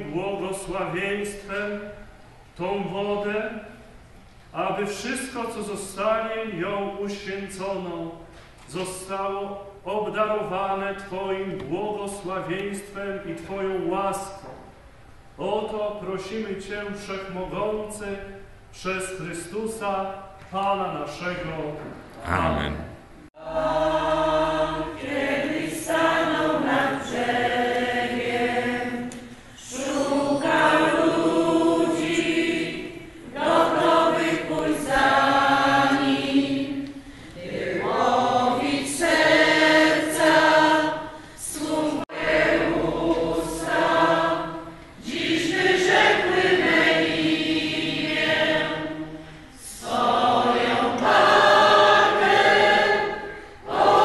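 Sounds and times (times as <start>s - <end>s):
women's choir singing a hymn: 23.4s - 54.0s.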